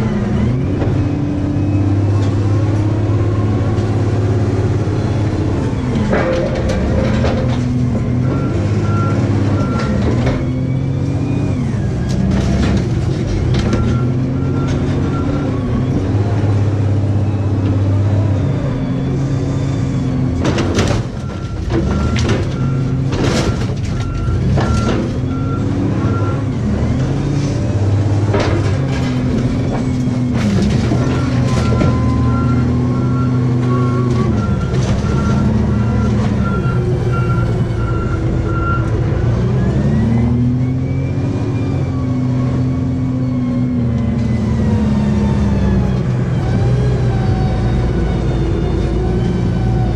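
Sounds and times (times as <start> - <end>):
heavy machine engine revving: 0.0 - 49.9
reversing alarm beeping: 7.7 - 12.8, 13.6 - 20.4, 21.2 - 26.9, 30.9 - 45.6.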